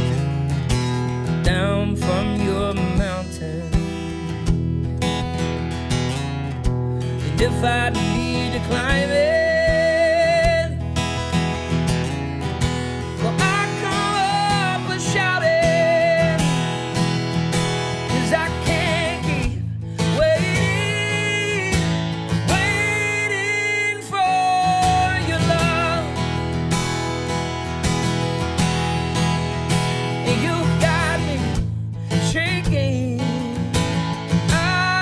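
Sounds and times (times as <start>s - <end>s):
strummed acoustic guitar: 0.0s - 35.0s
man singing: 1.4s - 4.3s, 7.1s - 11.1s, 13.1s - 26.4s, 30.1s - 35.0s.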